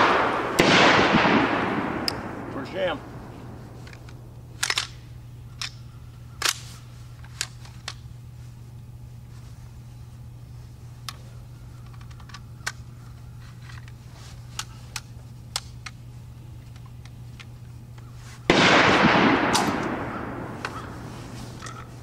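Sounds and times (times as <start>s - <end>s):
distant gunfire cracks: 0.0s - 3.0s, 18.5s - 21.0s
loud shotgun shot: 0.0s - 3.0s, 18.5s - 21.0s.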